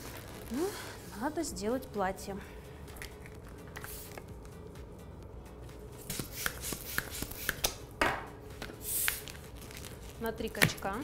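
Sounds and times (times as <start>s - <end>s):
balloons rubbing: 0.0s - 1.4s, 6.0s - 7.7s, 8.7s - 10.6s.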